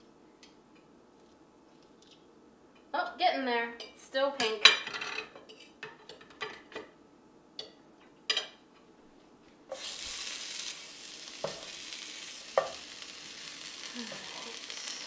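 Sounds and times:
fish sizzling in a frying pan: 9.7 - 15.0.

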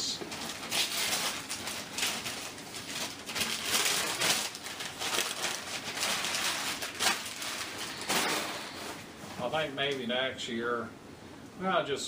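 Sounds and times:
wrapping paper tearing and crumpling: 0.2 - 9.1.

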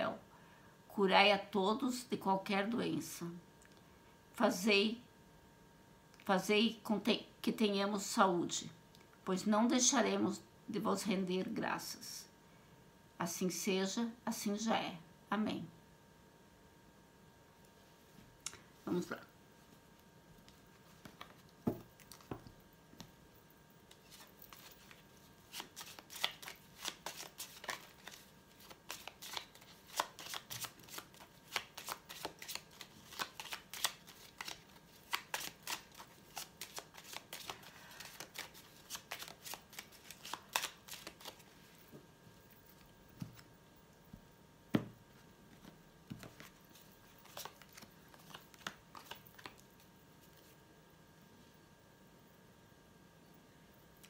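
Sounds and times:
cards being shuffled: 20.4 - 23.1, 23.8 - 41.9, 45.5 - 49.6.

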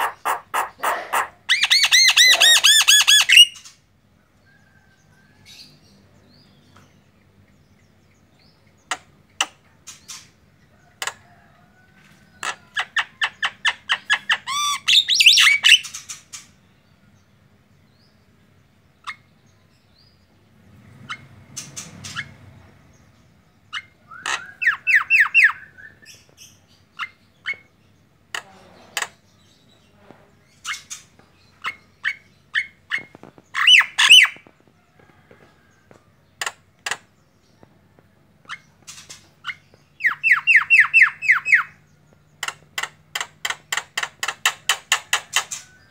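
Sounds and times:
bird clicks and chirps: 36.4 - 37.8, 38.4 - 45.8.

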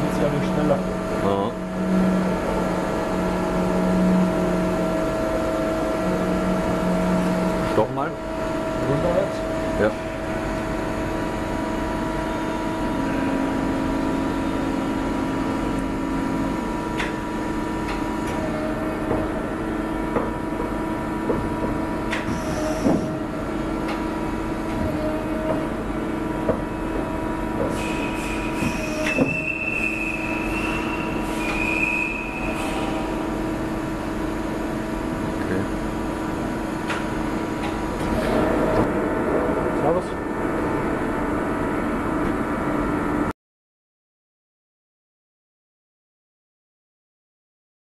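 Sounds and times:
high squealing whine: 0.0 - 43.0
lathe humming and whining: 0.0 - 43.3.

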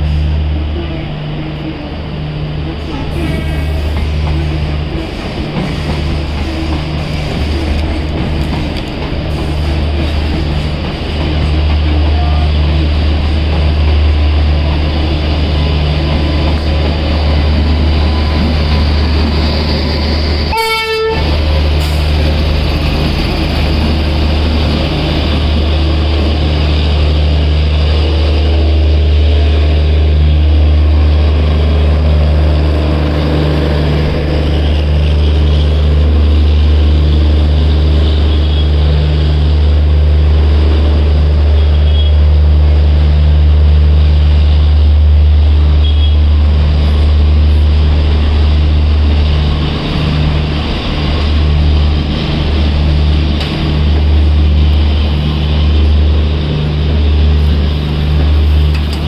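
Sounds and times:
train rumbling past: 0.0 - 59.0
train horn toot: 20.5 - 21.4, 37.8 - 38.9, 41.5 - 42.3, 45.7 - 46.4.

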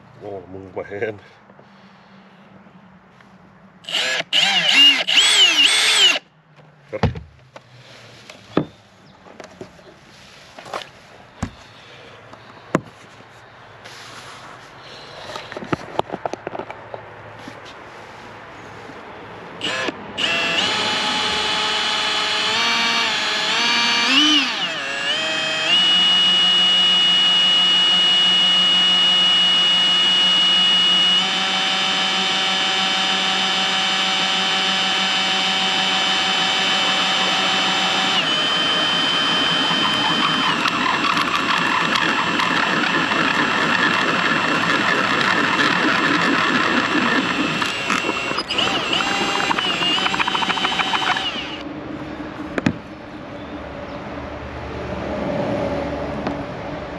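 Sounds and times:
cordless drill whining: 3.8 - 6.2, 19.6 - 51.6.

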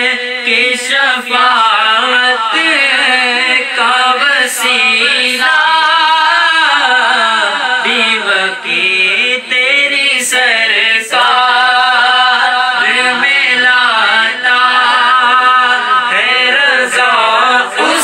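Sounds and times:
person chanting melodically: 0.0 - 18.0.

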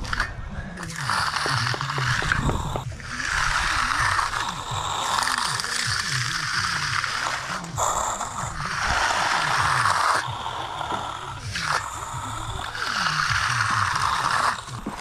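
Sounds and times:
trowel scraping concrete: 0.0 - 15.0.

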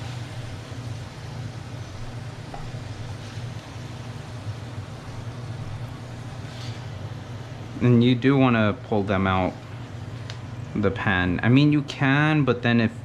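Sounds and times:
oil sizzling in frying pan: 0.0 - 7.8
steady low hum: 0.0 - 13.0.

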